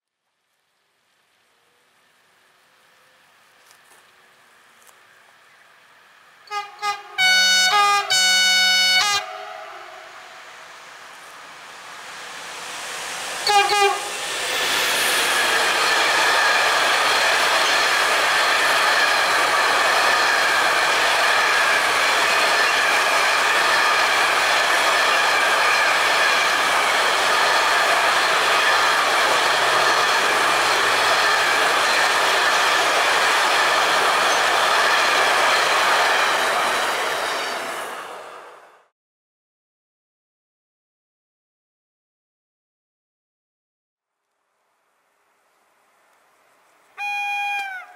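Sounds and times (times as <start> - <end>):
train wheel and rail noise: 1.6 - 38.9, 44.8 - 47.9
train horn: 6.4 - 10.4, 13.4 - 14.3, 47.0 - 47.9.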